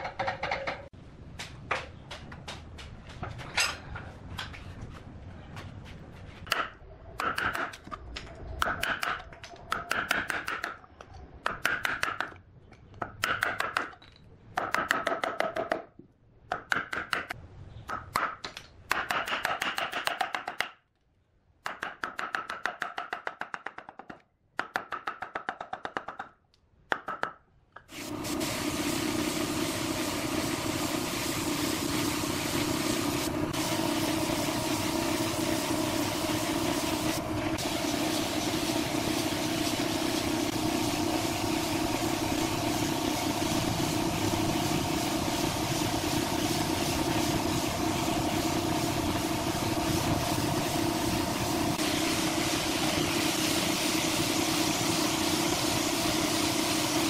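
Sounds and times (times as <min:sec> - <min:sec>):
spray gun hissing: 0:27.9 - 0:57.0
machine hum: 0:28.0 - 0:57.0.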